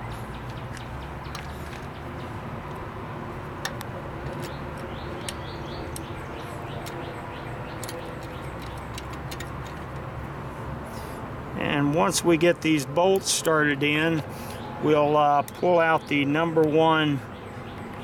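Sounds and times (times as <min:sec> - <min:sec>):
birds chirping: 0:04.3 - 0:09.9, 0:11.6 - 0:18.0.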